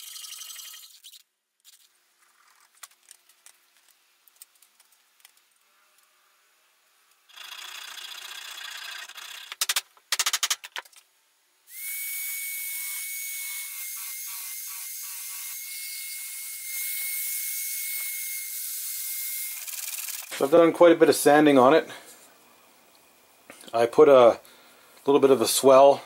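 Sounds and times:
electric drill whining: 0:11.7 - 0:20.4.

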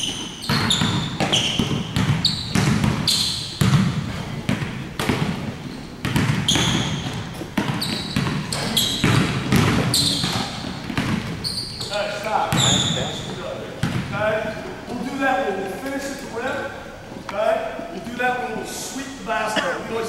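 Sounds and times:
sneakers squeaking: 0:00.0 - 0:14.6
basketball bouncing on hardwood: 0:00.4 - 0:11.4, 0:13.8 - 0:14.1.

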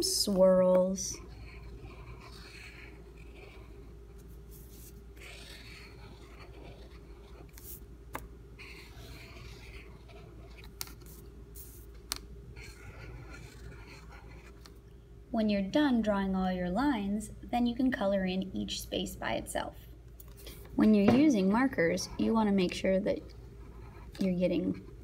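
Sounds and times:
marker rubbing on paper: 0:01.1 - 0:07.8, 0:08.6 - 0:14.6.

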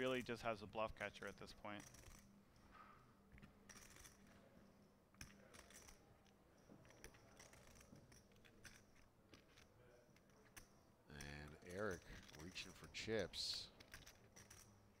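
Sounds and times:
poker chips clicking: 0:06.8 - 0:15.0.

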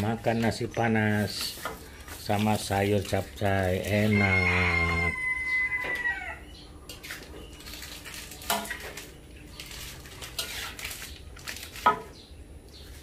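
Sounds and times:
metal spatula scraping a wok: 0:00.0 - 0:04.5, 0:06.9 - 0:12.1.

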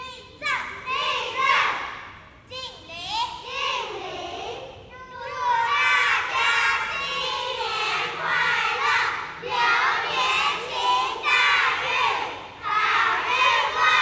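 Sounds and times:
children's chorus in unison: 0:00.9 - 0:02.1, 0:05.1 - 0:14.0.

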